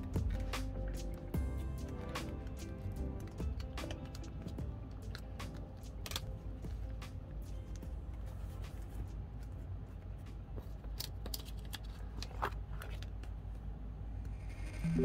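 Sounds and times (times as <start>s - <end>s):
low steady hum: 0.0s - 15.0s
plastic sleeves clicking and rustling: 3.2s - 13.6s.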